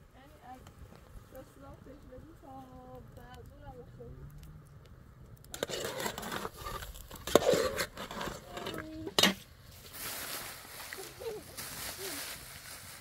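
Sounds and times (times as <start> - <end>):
metal spoon scraping a pan: 5.5 - 9.4.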